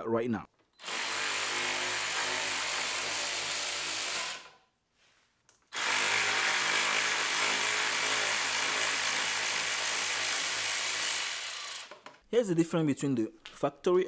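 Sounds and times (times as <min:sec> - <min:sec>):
cordless drill spinning: 0:00.8 - 0:04.6, 0:05.7 - 0:12.2.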